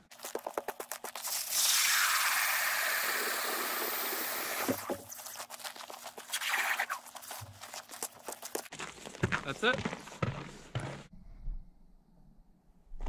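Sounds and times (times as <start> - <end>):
ice crunching: 0.0 - 2.6, 3.9 - 9.7
drill auger grinding ice: 1.3 - 5.2.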